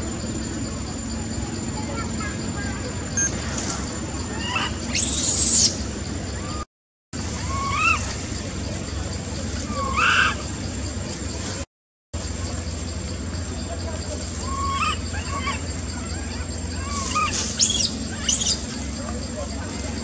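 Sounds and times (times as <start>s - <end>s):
steady low hum: 0.0s - 20.0s
macaque squeaky cries: 4.3s - 5.8s, 7.4s - 8.1s, 9.7s - 10.5s, 14.4s - 18.8s.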